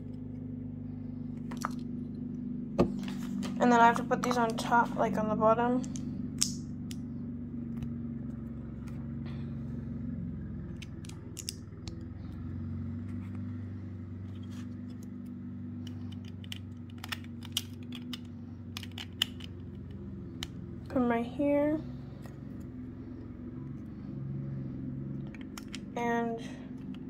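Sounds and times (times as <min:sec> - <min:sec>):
steady low hum: 0:00.0 - 0:27.0
plastic bricks clicking: 0:10.8 - 0:12.0.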